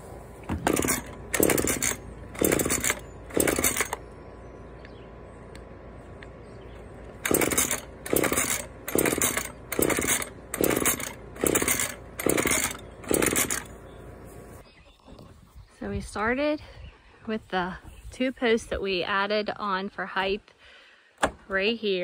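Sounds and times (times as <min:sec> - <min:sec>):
chainsaw pull cord: 0:00.5 - 0:04.0, 0:07.0 - 0:13.8
engine turning over: 0:00.5 - 0:04.1, 0:07.0 - 0:13.9.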